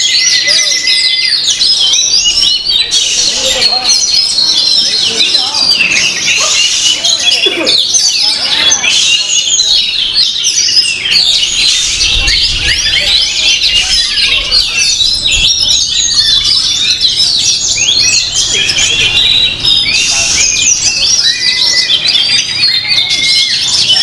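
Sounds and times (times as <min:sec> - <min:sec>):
chorus of songbirds: 0:00.0 - 0:24.0.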